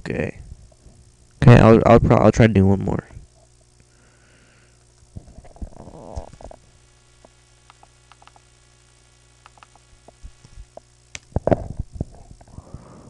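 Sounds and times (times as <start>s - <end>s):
electrical mains hum: 0.0s - 13.0s
faint clicks: 7.2s - 8.5s, 9.4s - 11.3s.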